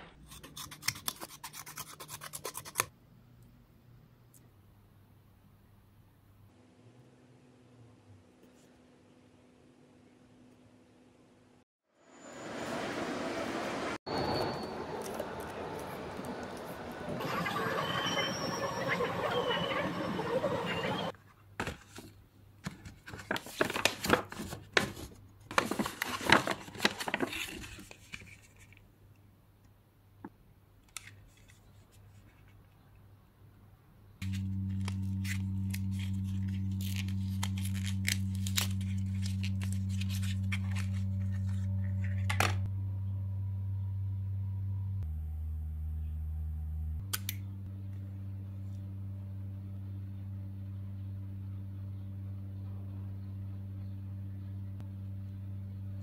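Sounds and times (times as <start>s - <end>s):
background hubbub: 15.2s - 21.1s
paper packaging crinkling and tearing: 22.7s - 28.7s, 34.2s - 42.3s
low steady drone: 34.2s - 56.0s.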